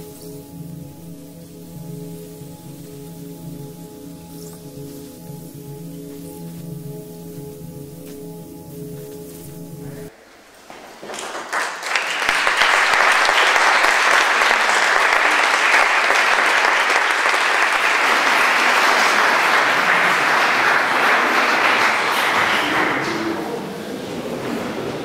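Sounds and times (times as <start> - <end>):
audience applauding: 10.7 - 25.0.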